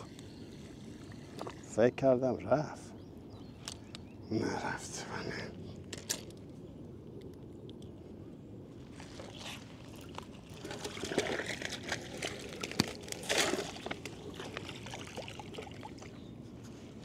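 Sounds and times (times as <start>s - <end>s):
water splashing and trickling: 0.0s - 1.8s, 8.9s - 16.3s.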